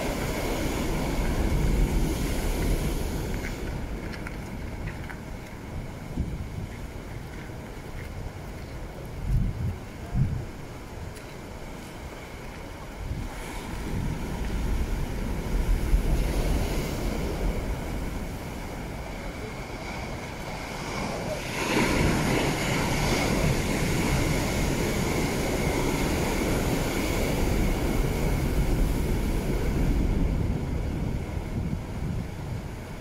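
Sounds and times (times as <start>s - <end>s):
sea waves breaking on rocks: 0.0s - 33.0s
wind buffeting microphone: 0.0s - 33.0s.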